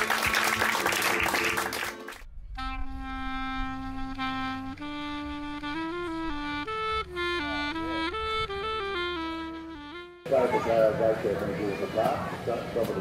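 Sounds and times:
audience applauding: 0:00.0 - 0:02.2
slow melody of held notes: 0:02.6 - 0:10.3.

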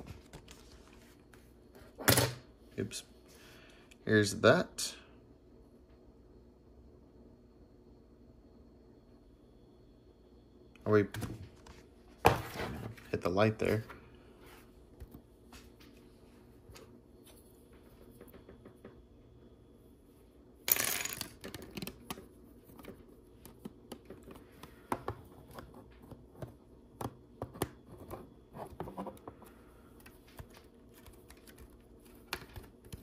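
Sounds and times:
plastic pieces clicking and rattling: 0:20.7 - 0:22.0.

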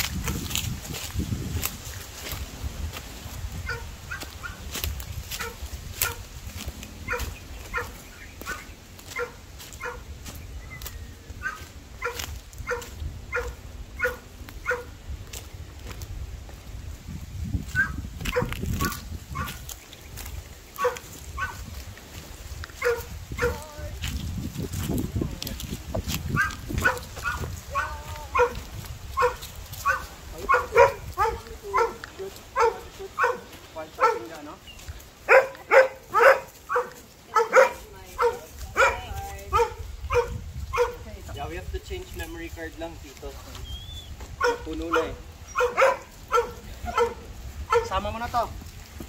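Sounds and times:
dog barking: 0:03.6 - 0:04.6, 0:05.4 - 0:06.2, 0:07.0 - 0:10.0, 0:11.4 - 0:14.9, 0:17.7 - 0:19.6, 0:20.8 - 0:21.6, 0:22.8 - 0:23.6, 0:26.4 - 0:34.5, 0:35.2 - 0:41.1, 0:44.4 - 0:48.0.

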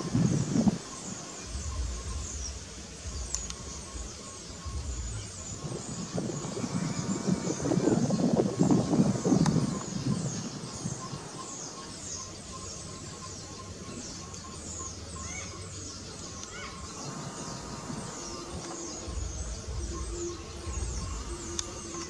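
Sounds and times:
small birds chirping: 0:00.0 - 0:22.0
loud low rumbling: 0:16.8 - 0:22.0.

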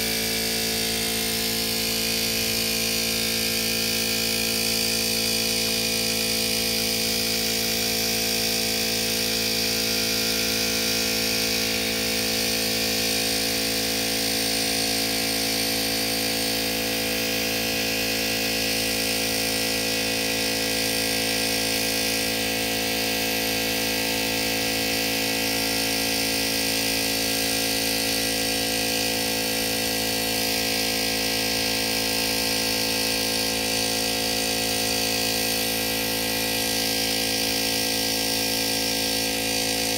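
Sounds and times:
motor hum: 0:00.0 - 0:02.6
spray gun hissing: 0:00.0 - 0:39.9.

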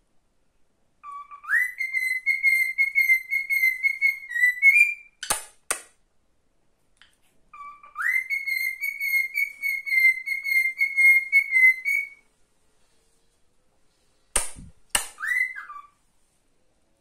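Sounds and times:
bird chirp rising and falling: 0:01.0 - 0:05.2, 0:07.5 - 0:12.2, 0:15.2 - 0:16.0
cockatiel whistling warbling note: 0:15.2 - 0:16.0.

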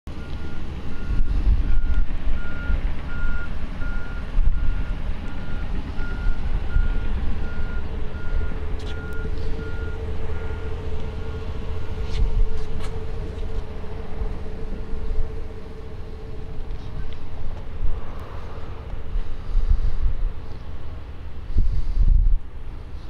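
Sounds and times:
vehicle reversing alarm beeping: 0:00.1 - 0:17.2
loud low rumble: 0:00.1 - 0:23.0
steady hum: 0:04.0 - 0:23.0.

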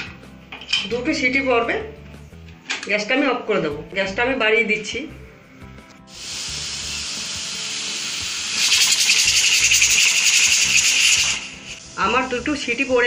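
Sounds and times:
pressure cooker whistle: 0:06.1 - 0:11.8
steam hissing: 0:06.1 - 0:13.0.

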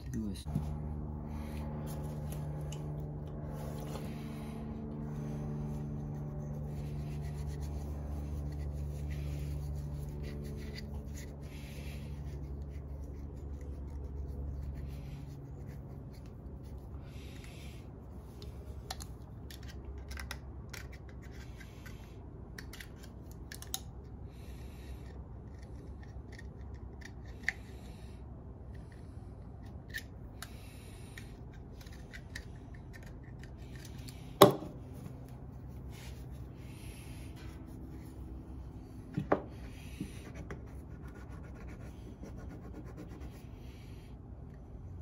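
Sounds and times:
low machine hum: 0:00.0 - 0:45.0
scouring pad scratching: 0:00.6 - 0:17.0.

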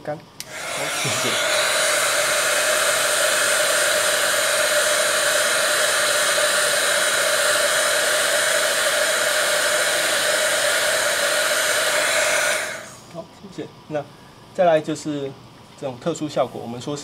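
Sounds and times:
hair dryer running: 0:00.4 - 0:13.1.

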